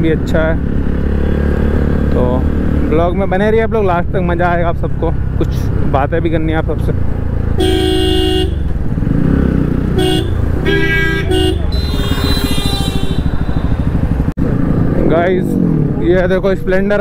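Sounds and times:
motorcycle engine running: 0:00.0 - 0:16.8
vehicle horns honking: 0:07.6 - 0:08.7, 0:09.9 - 0:14.1.

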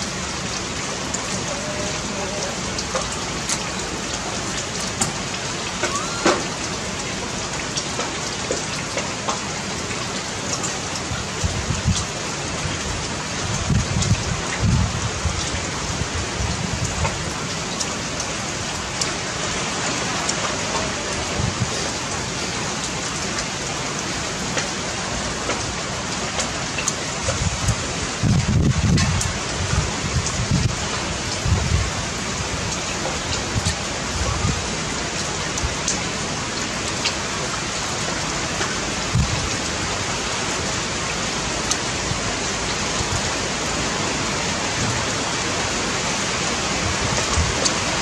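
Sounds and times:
rain falling: 0:00.0 - 0:48.0.

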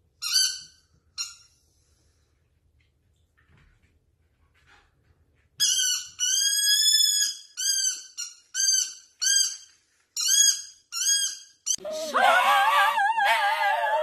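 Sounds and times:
squeaky rubber ball squeaks: 0:05.6 - 0:11.9.

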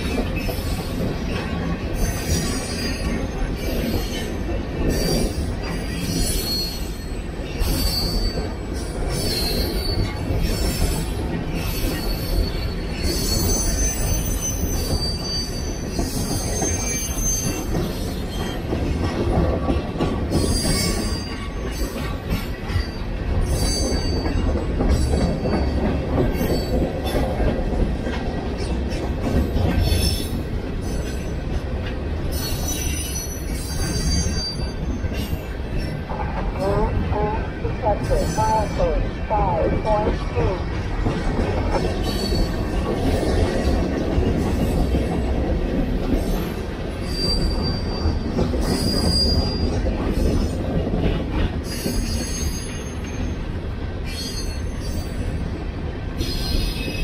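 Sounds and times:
train wheels rumbling on rail: 0:00.0 - 0:57.0
high-pitched wheel squeals: 0:06.0 - 0:07.1, 0:11.8 - 0:17.7, 0:32.4 - 0:35.0.

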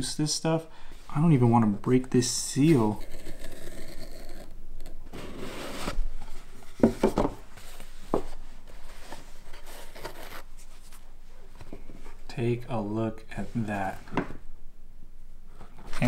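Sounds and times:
lid sliding off cardboard box: 0:05.1 - 0:06.0.

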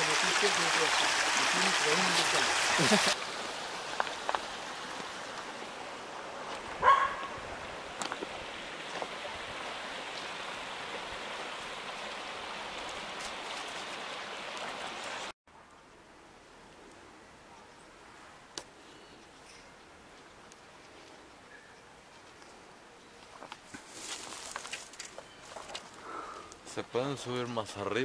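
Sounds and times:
river water over stones: 0:00.0 - 0:15.3
dog barking: 0:06.8 - 0:07.4.

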